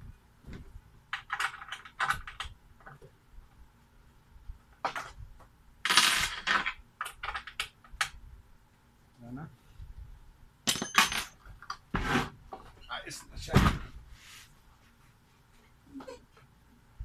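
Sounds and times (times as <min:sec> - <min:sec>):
small metal parts clinking: 0:10.7 - 0:11.6.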